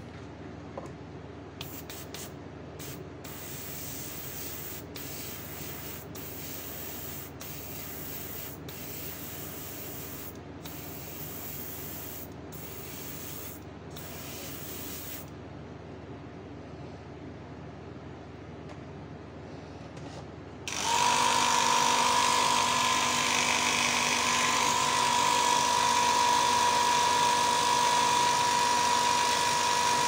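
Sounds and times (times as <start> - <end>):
airbrush spraying hiss: 1.6 - 15.3.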